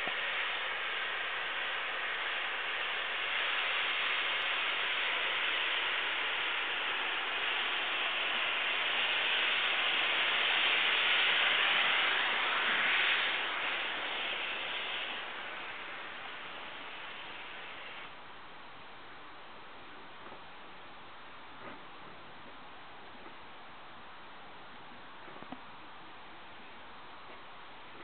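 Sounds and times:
steam locomotive hissing: 0:00.0 - 0:18.2.

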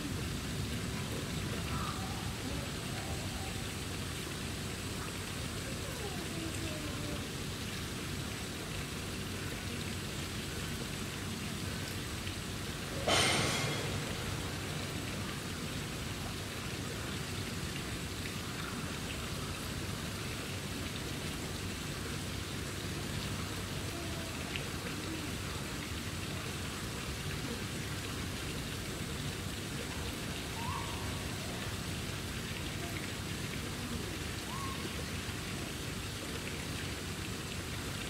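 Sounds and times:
rain pattering: 0:00.0 - 0:38.0
sudden rush of noise: 0:13.0 - 0:16.0.

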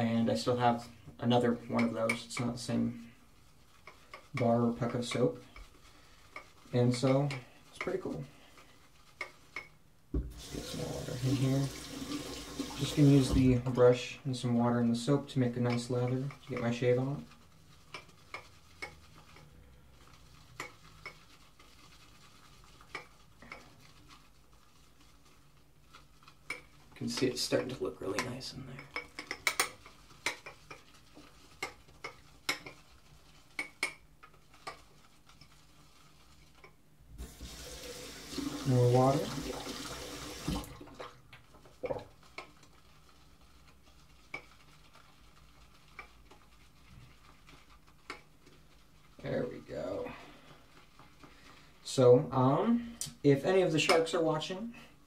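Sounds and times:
shaving brush swishing: 0:00.1 - 0:09.7, 0:10.4 - 0:28.6, 0:29.7 - 0:40.6, 0:41.7 - 0:50.0
brush clinking against bowl: 0:01.6 - 0:02.8, 0:03.7 - 0:09.8, 0:14.8 - 0:24.4, 0:26.0 - 0:36.8.

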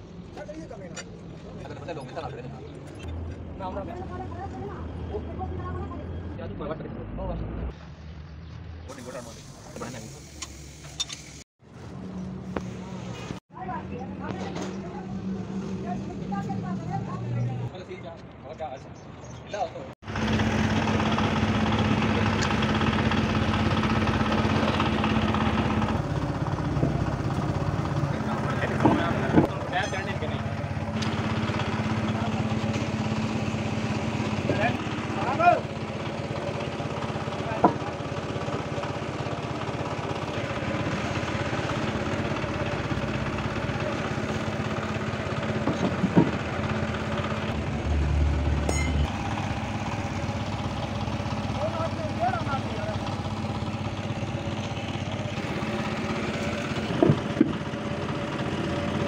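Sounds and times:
engine idling: 0:20.0 - 0:59.0.

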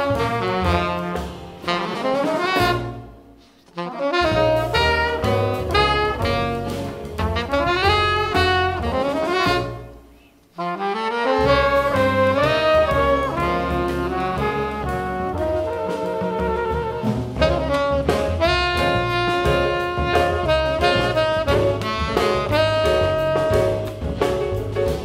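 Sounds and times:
upright bass: 0:00.0 - 0:03.1, 0:04.1 - 0:10.0, 0:11.4 - 0:25.0
trumpet: 0:00.0 - 0:24.4
tenor saxophone: 0:03.7 - 0:10.0, 0:10.6 - 0:24.0.

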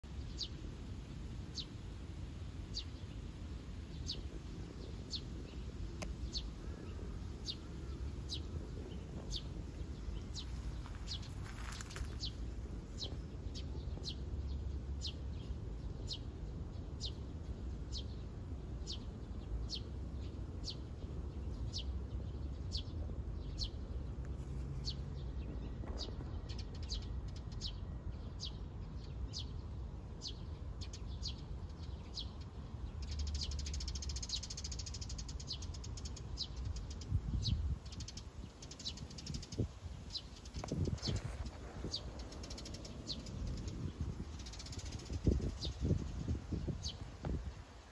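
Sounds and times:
steady low rumble: 0:00.0 - 0:33.1, 0:35.8 - 0:47.9
small bird chirping: 0:30.2 - 0:47.1.

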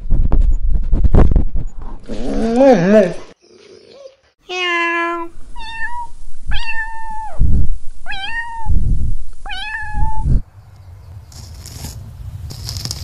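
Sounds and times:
cat meowing: 0:04.5 - 0:07.4, 0:08.1 - 0:08.8, 0:09.5 - 0:10.3.

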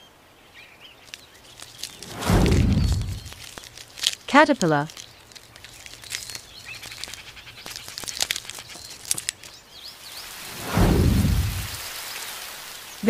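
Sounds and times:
rush of rain-like noise: 0:00.0 - 0:04.2, 0:09.6 - 0:13.0
small clicks: 0:01.0 - 0:02.1, 0:02.7 - 0:09.6
low rumble: 0:02.0 - 0:03.5, 0:10.5 - 0:11.8.

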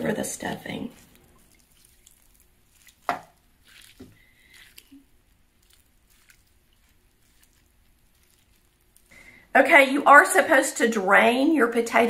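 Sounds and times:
liquid splashing and dripping: 0:00.4 - 0:09.4.

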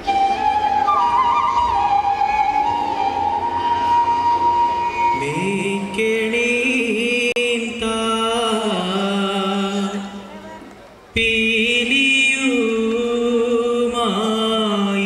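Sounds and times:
flute note: 0:00.0 - 0:06.3.

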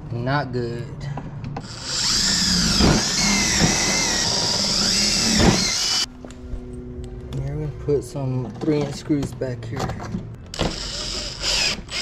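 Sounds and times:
impact driver motor whine: 0:01.6 - 0:06.1, 0:10.6 - 0:12.0.

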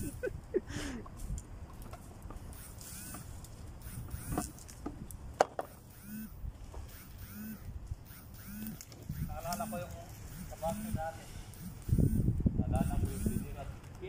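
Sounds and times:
branches dragged across grass: 0:01.2 - 0:13.9
short squeaky chirps: 0:02.5 - 0:04.6, 0:05.6 - 0:13.5
sharp click: 0:08.1 - 0:09.8.

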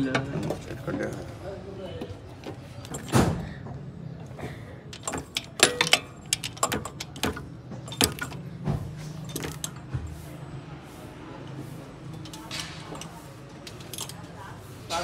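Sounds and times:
metallic clinks of tools: 0:04.9 - 0:08.6, 0:12.2 - 0:14.5.

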